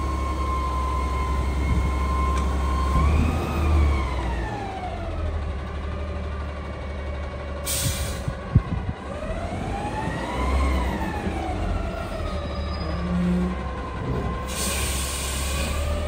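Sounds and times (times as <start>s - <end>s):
diesel truck engine running: 0.0s - 16.0s.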